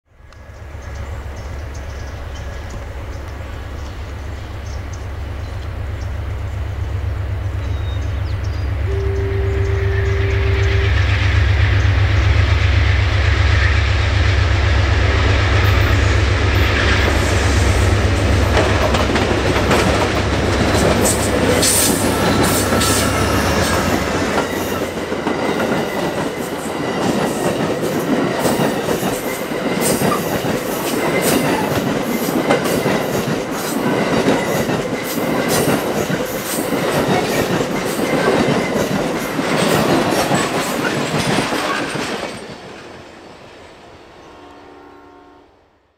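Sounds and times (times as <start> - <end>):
diesel locomotive engine drumming: 0.1 - 43.5
train wheels clicking over rail joints: 13.4 - 43.6.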